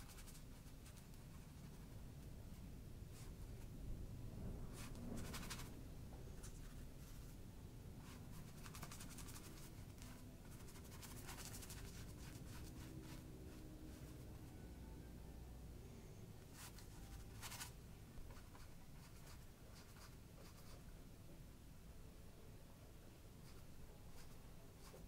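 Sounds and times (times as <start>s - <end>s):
paintbrush scratching on panel: 8.0s - 14.2s.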